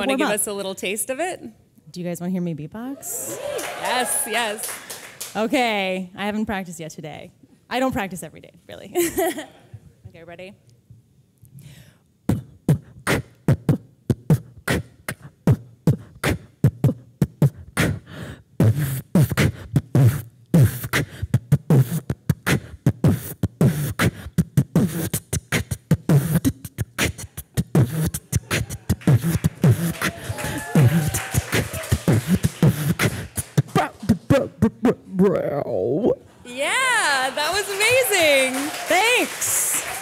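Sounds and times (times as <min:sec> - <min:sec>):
woman beatboxing: 0:00.0 - 0:00.5, 0:12.2 - 0:35.1.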